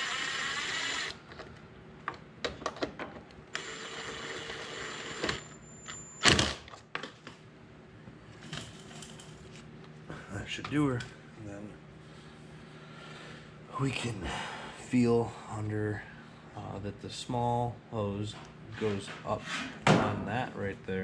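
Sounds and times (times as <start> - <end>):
cordless ratchet running: 0.0 - 1.2.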